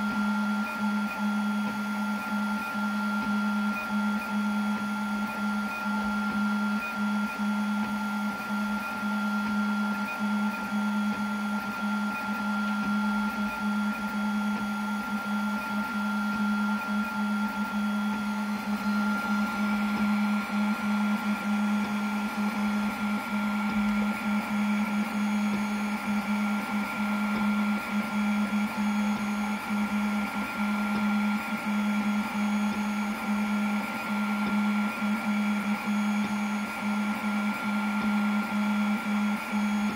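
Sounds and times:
laser cutter motors humming: 0:00.0 - 0:39.9.

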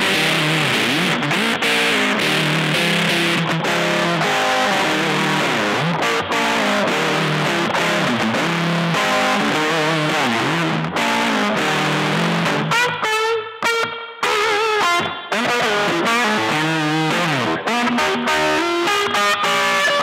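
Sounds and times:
electric guitar with string bends: 0:00.0 - 0:20.0.

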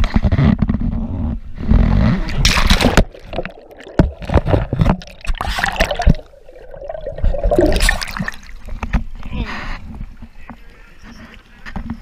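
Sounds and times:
water splashing and sloshing: 0:02.2 - 0:09.2.

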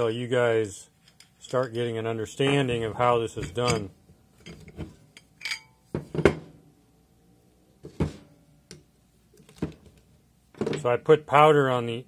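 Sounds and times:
metal plates clinking and knocking: 0:03.4 - 0:06.4.

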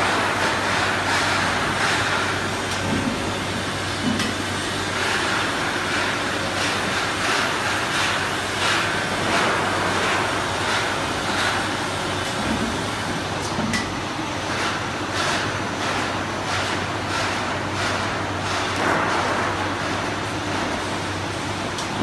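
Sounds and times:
machine hum and rumble: 0:00.0 - 0:22.0.

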